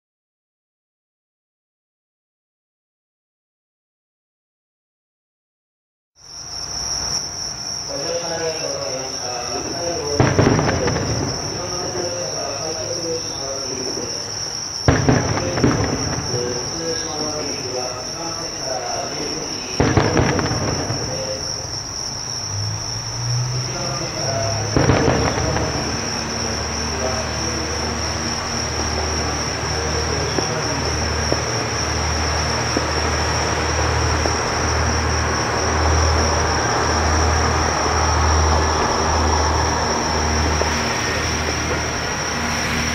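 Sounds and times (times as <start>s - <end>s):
insects chirping: 6.2s - 42.9s
fireworks bangs: 7.0s - 42.9s
diesel railcar engine hum: 25.4s - 42.9s.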